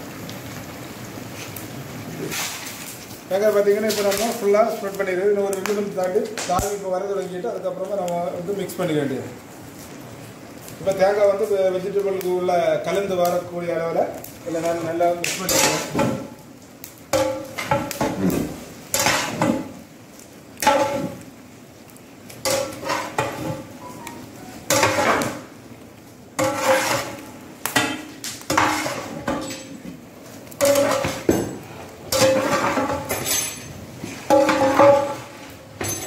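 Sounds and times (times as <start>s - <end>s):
metal ladle scraping metal vessel: 22.5s - 23.6s, 26.4s - 27.2s, 27.8s - 29.4s.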